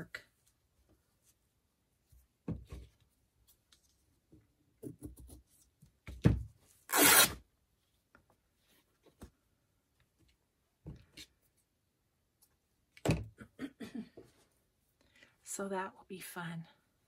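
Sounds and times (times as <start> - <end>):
loud paper rasp: 6.9 - 7.3.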